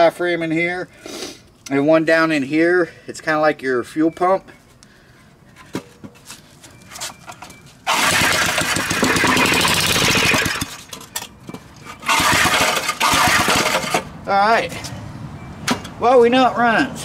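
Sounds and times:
small engine catching and dying: 7.9 - 11.2, 12.0 - 14.1.

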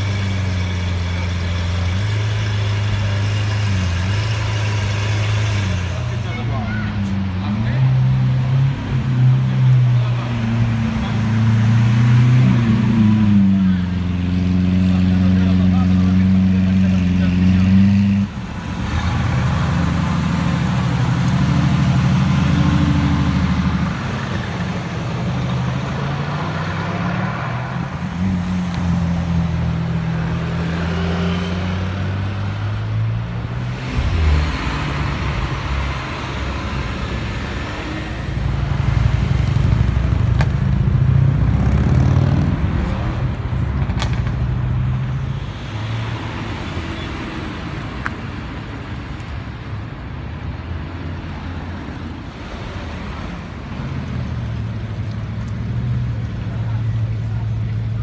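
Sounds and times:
supercar engines driving by: 0.0 - 58.0
traffic noise: 0.0 - 58.0.

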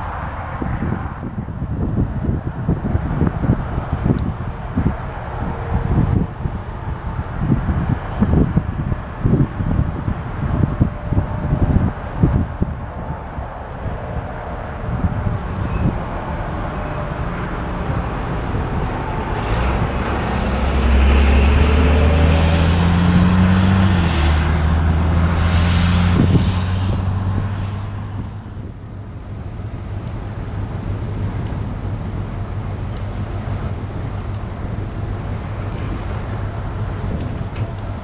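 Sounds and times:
distant train rumble: 0.0 - 38.0
locomotive engine drone: 0.0 - 38.0.

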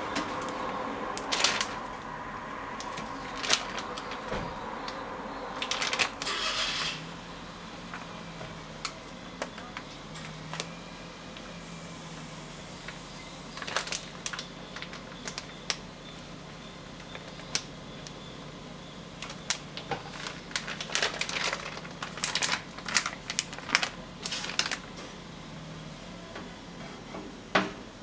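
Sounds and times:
plastic bag crinkling: 0.0 - 6.9, 13.5 - 15.8, 19.2 - 25.0.

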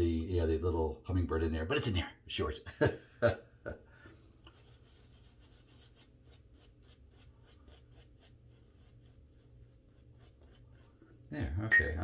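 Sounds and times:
shaving brush strokes: 4.4 - 11.2.

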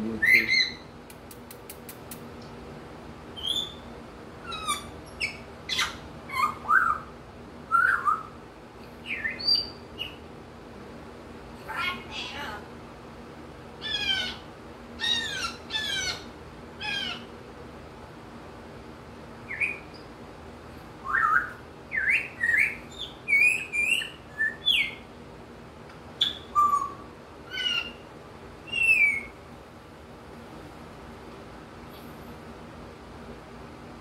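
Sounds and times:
parrot whistled calls and chirps: 0.2 - 0.9, 3.4 - 7.1, 7.7 - 8.4, 9.0 - 10.2, 13.8 - 17.3, 19.4 - 20.1, 21.0 - 25.1, 26.2 - 29.4.

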